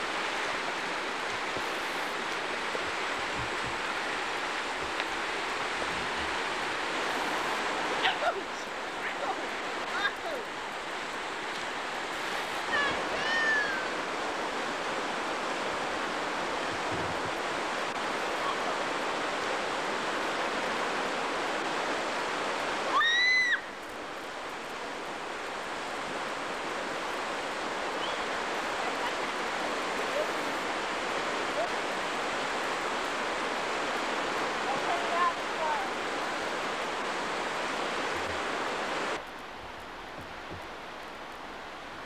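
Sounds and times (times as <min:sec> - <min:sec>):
river rushing over rapids: 0:00.0 - 0:42.0.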